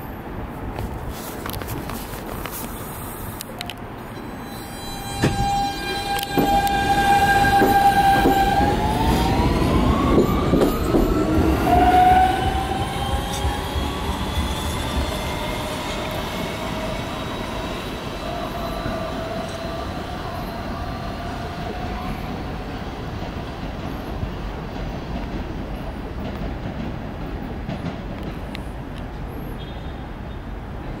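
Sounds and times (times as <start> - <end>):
subway train traction motors whining: 2.8 - 26.2.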